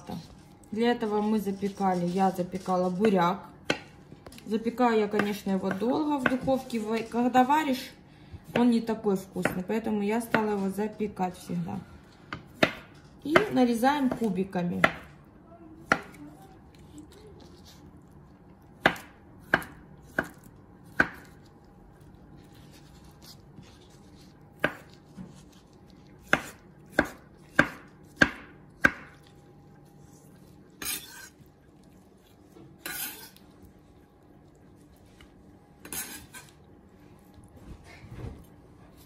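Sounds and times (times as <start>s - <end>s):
knife chopping on cutting board: 5.0s - 6.7s, 12.3s - 15.1s, 15.8s - 16.2s, 18.8s - 21.4s, 22.8s - 29.3s.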